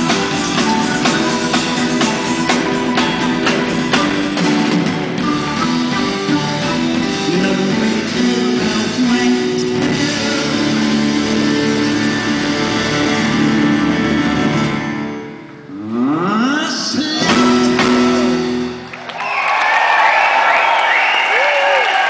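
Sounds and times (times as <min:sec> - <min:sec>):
flute: 0:00.0 - 0:08.2
drum kit: 0:00.0 - 0:15.0, 0:17.0 - 0:18.8
electric guitars: 0:00.0 - 0:15.6
bass guitar: 0:00.0 - 0:19.0.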